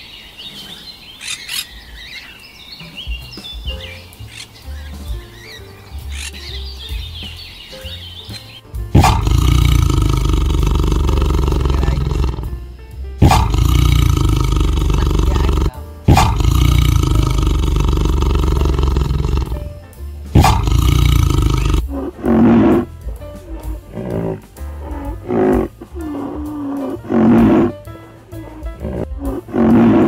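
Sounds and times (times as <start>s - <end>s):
tiger roaring: 9.0s - 12.6s, 13.2s - 30.0s.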